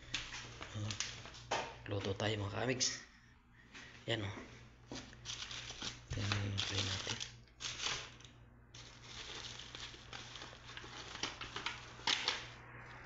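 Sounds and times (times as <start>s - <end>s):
cling film and paper crinkling: 0.0s - 1.5s, 5.0s - 12.6s.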